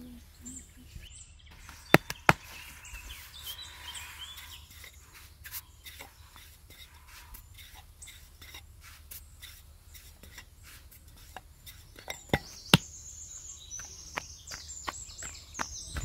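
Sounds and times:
high chirping: 0.0s - 8.5s, 9.1s - 16.0s
sharp knocks: 1.9s - 2.5s.

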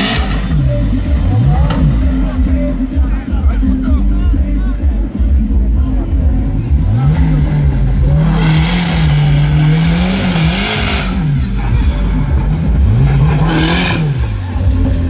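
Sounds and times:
engine revving hard: 0.0s - 2.5s, 6.6s - 15.0s.

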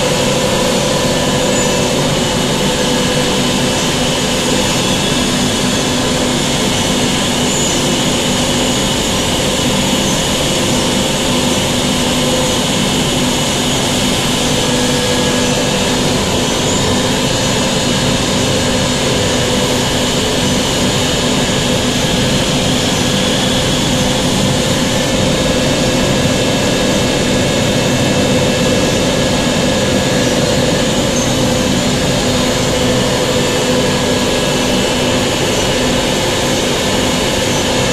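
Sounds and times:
constant machine tones: 0.0s - 37.9s
machine humming and hissing: 0.0s - 37.9s.

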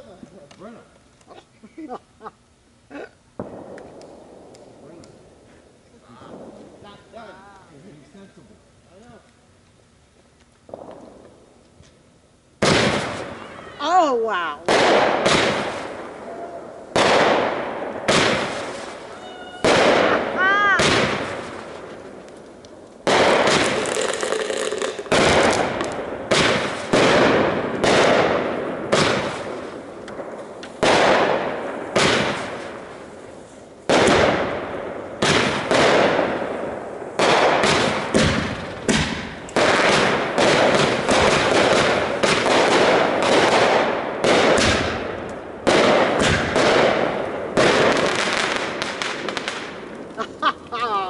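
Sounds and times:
firework bangs with echo: 3.4s - 5.3s, 6.2s - 7.2s, 10.7s - 11.4s, 12.6s - 13.5s, 14.6s - 50.2s.

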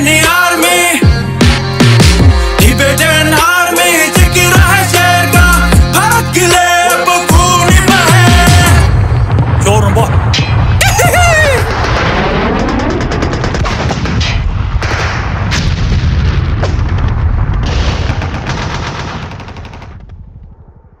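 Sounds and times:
machine-gun fire: 11.6s - 20.5s.

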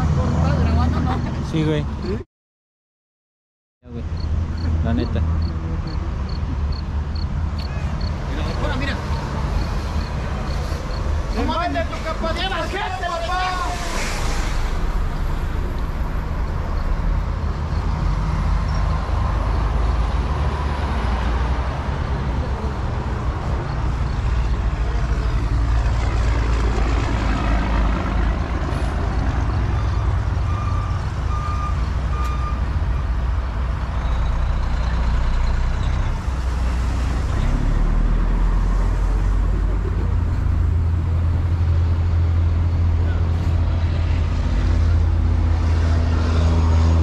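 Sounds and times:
truck engine rumbling: 3.9s - 47.0s
short beeps: 29.8s - 32.7s.

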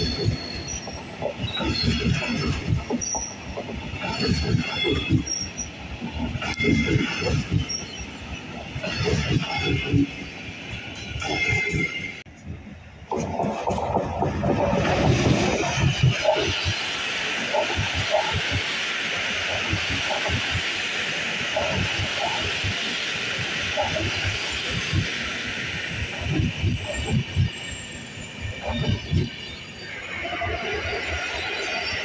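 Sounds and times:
train wheels rolling hiss: 14.7s - 29.6s.

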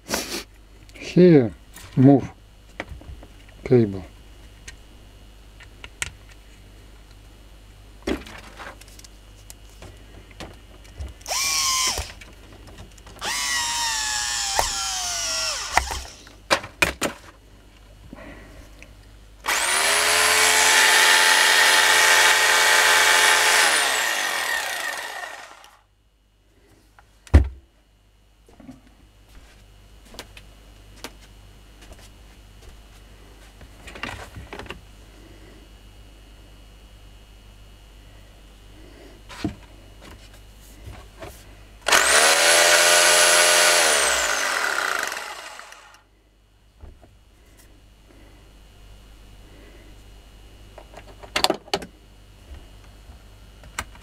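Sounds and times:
rotary hammer motor running: 11.3s - 12.2s, 13.2s - 16.3s, 19.4s - 25.8s, 41.9s - 46.0s.

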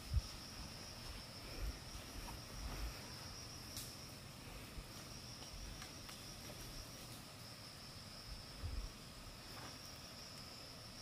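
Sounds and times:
insects droning: 0.0s - 11.0s.

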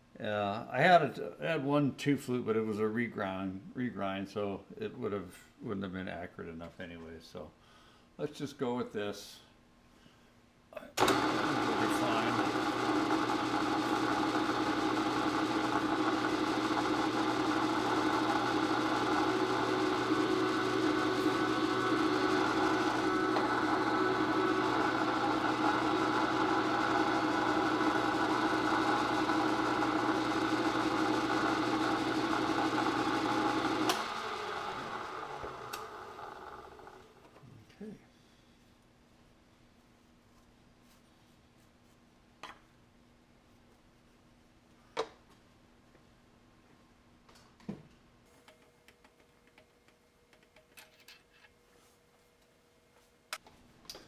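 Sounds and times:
milling machine spindle running: 11.0s - 37.0s.

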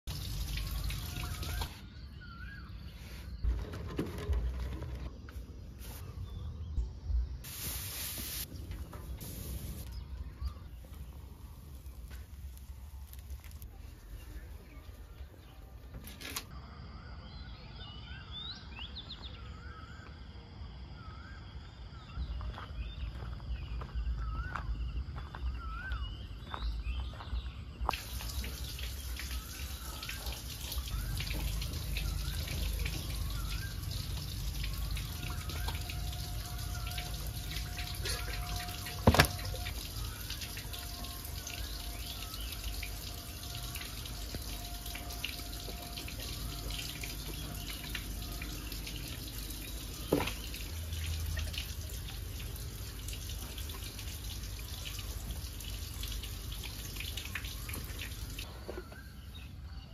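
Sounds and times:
water splashing and dripping: 0.0s - 1.9s, 7.5s - 15.3s, 27.8s - 58.5s.

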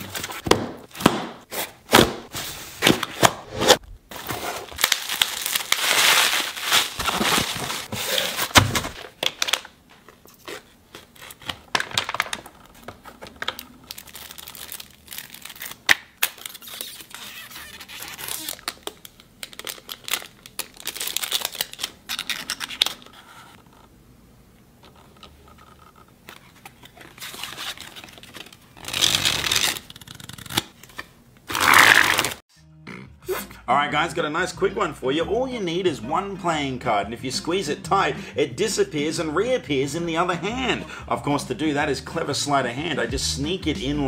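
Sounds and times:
cardboard tearing and crinkling: 0.0s - 9.7s, 13.2s - 23.1s, 26.4s - 30.8s, 31.5s - 32.4s.

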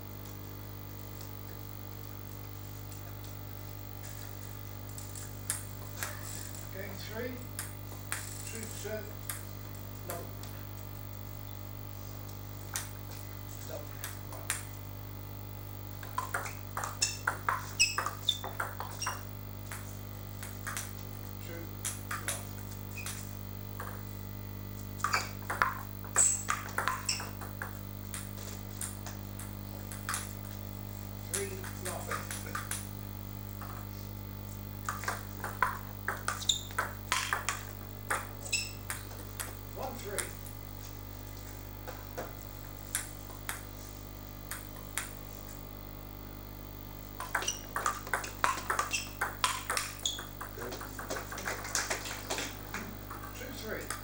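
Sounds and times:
steady low hum: 0.0s - 54.0s
table tennis ball clicking: 16.0s - 19.8s, 20.4s - 20.9s, 25.0s - 30.3s, 34.8s - 39.5s, 47.2s - 54.0s.

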